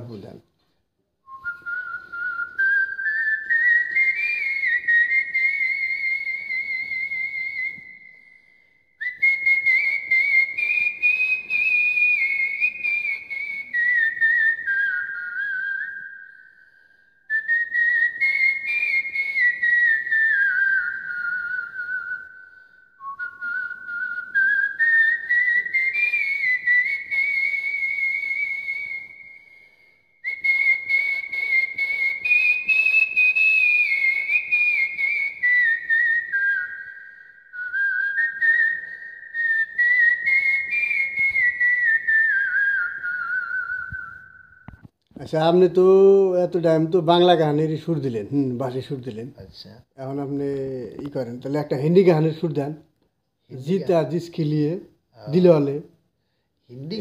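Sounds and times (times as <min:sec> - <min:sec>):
man whistling a melody: 0:01.2 - 0:45.0.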